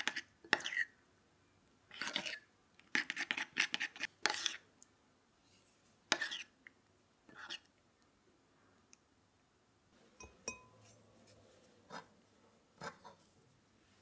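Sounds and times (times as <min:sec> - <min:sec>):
metal spoon scraping glass: 0:10.2 - 0:11.0.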